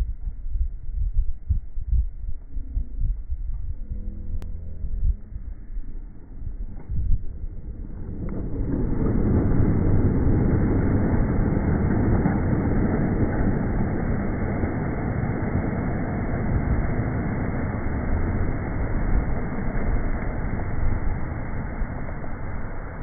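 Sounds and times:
geyser rush of water and steam: 7.6s - 23.0s.

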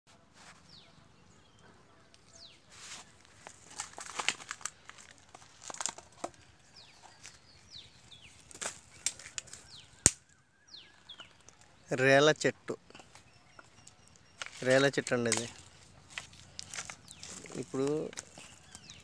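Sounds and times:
leaves crackling underfoot: 2.2s - 11.8s, 13.0s - 19.0s
twig snapping: 3.3s - 6.5s, 8.4s - 11.7s, 13.0s - 19.0s.

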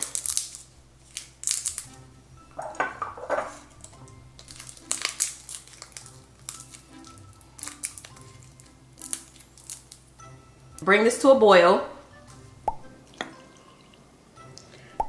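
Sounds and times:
garlic skins crackling: 0.0s - 2.1s, 3.5s - 10.8s.

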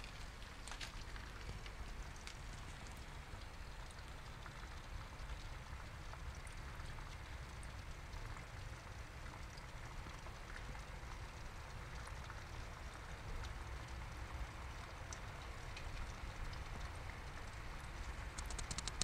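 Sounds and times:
water trickling in a pond: 0.0s - 19.0s
faint ticks: 15.1s - 19.0s.

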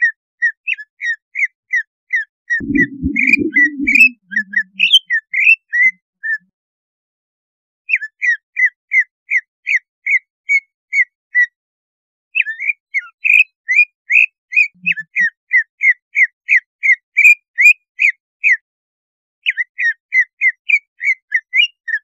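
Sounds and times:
bird whistling sharp notes: 2.6s - 5.1s.

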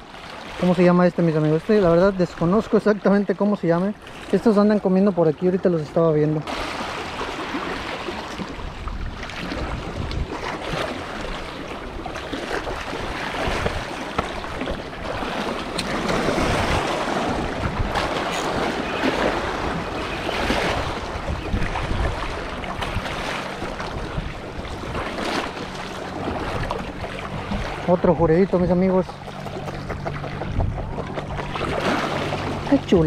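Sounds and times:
waves breaking against rocks: 0.0s - 33.0s
wind buffeting microphone: 6.6s - 33.0s.

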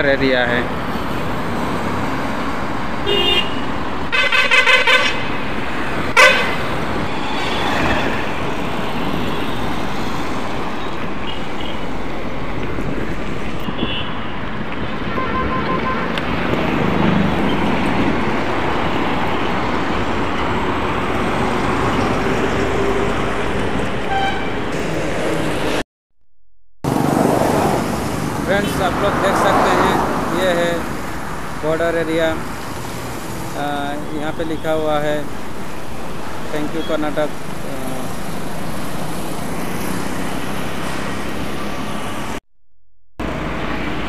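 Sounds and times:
highway traffic passing: 0.0s - 25.9s, 26.8s - 42.4s, 43.2s - 44.0s
car horn blast: 3.1s - 5.4s, 6.1s - 6.7s, 15.1s - 16.1s, 24.1s - 24.6s.

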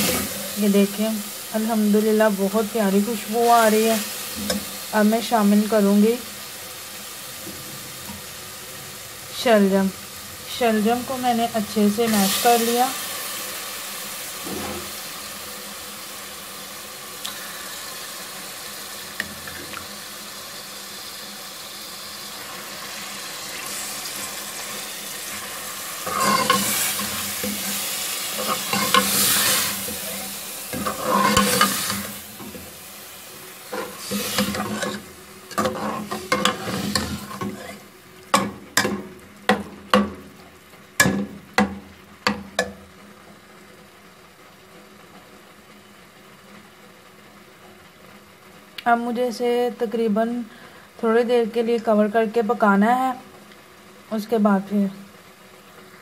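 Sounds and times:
food sizzling in hot oil: 0.0s - 56.0s
steel spoon scraping pan: 26.0s - 27.8s, 28.4s - 32.1s, 33.7s - 37.8s.

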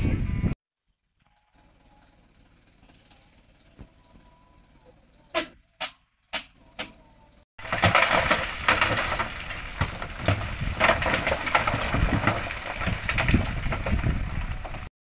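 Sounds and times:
truck engine running: 1.6s - 14.9s
rocks tumbling from dump truck: 7.6s - 14.9s.

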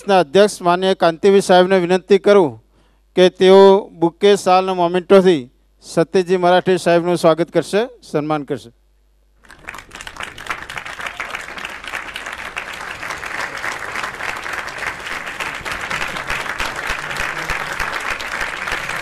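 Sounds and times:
audience applauding: 9.4s - 19.0s.

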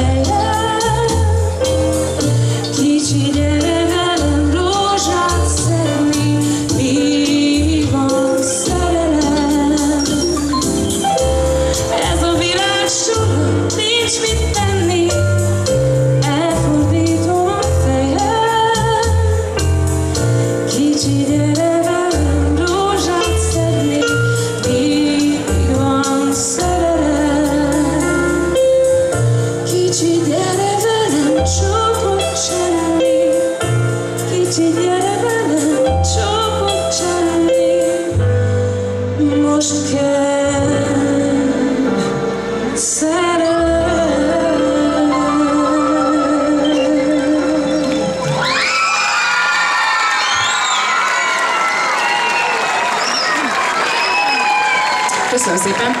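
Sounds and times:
woman singing pop song: 0.0s - 10.4s, 11.7s - 19.6s, 20.5s - 28.7s, 29.5s - 38.4s, 39.1s - 48.2s
bass line: 0.0s - 49.5s.

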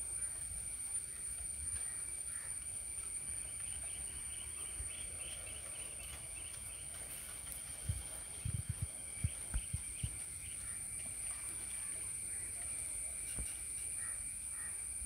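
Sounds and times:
insects droning: 0.0s - 15.0s
rapid insect chirping: 0.0s - 15.0s
wind on microphone: 7.6s - 10.7s.

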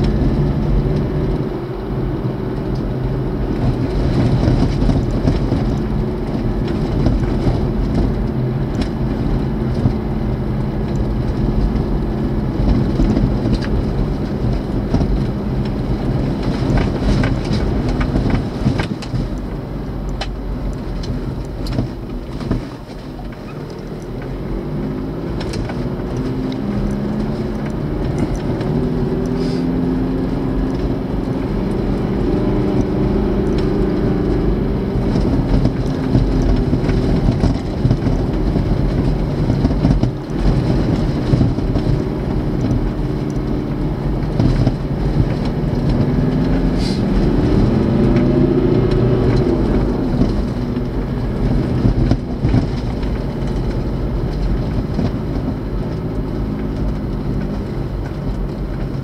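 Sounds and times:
vehicle on gravel road: 0.0s - 59.0s
knocks and rattles from bumps: 10.9s - 29.4s, 35.1s - 59.0s.

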